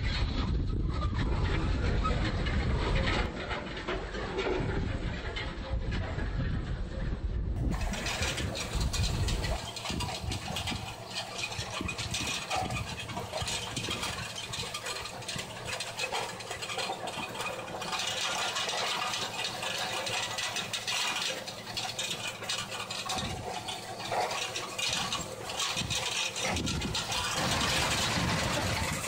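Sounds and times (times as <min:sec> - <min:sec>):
cultivator rattling: 0:07.6 - 0:29.0
tractor engine running: 0:07.6 - 0:29.0.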